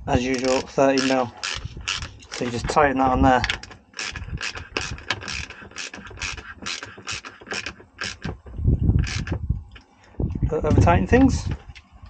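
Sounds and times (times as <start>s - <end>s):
ratchet wrench clicking: 0.3s - 2.6s, 3.4s - 8.3s
dull knocks: 4.8s - 9.5s.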